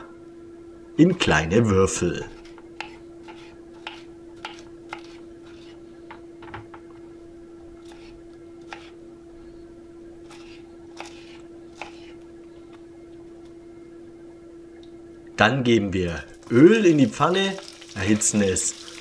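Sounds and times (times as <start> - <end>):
steady low hum: 0.0 - 19.0
knife chopping on a wooden board: 2.8 - 5.2, 7.8 - 8.9, 10.3 - 12.1.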